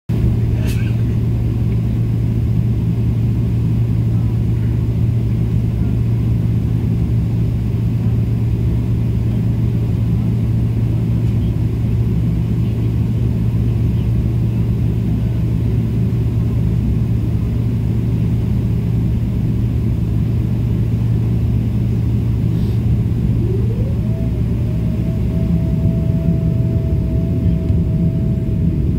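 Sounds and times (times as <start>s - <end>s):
airliner cabin hum and rumble: 0.1s - 28.9s
rising tone: 23.0s - 28.9s.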